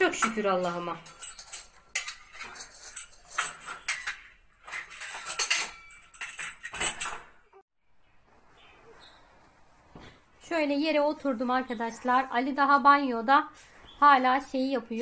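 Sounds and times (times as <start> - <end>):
metal wrench clinking and scraping: 0.0 - 7.4.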